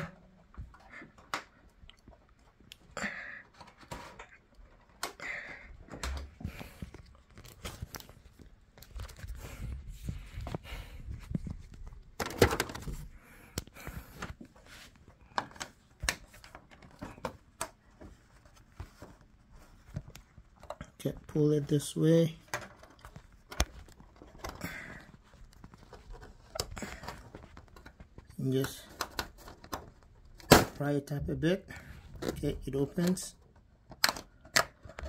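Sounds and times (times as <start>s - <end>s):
plastic cover clicking and creaking: 3.4s - 9.4s, 11.2s - 14.5s, 15.2s - 18.1s, 22.3s - 30.8s, 32.0s - 35.0s.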